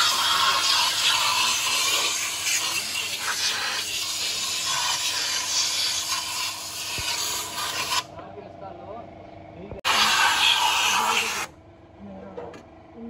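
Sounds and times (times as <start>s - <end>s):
compressed air spray gun hissing: 0.0s - 8.1s, 9.9s - 11.5s.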